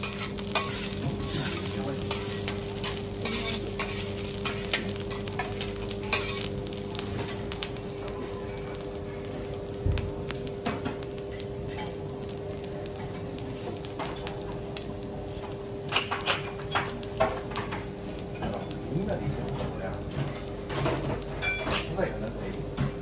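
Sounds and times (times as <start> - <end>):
metal utensils clinking on griddle: 0.0 - 7.5, 10.3 - 14.4, 15.2 - 22.2.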